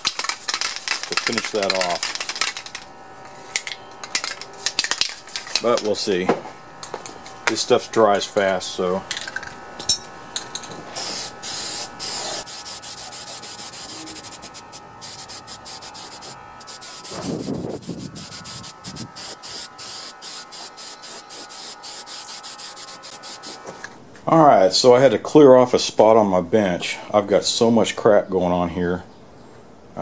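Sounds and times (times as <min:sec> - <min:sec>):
aerosol spray can hissing: 0:11.0 - 0:23.7.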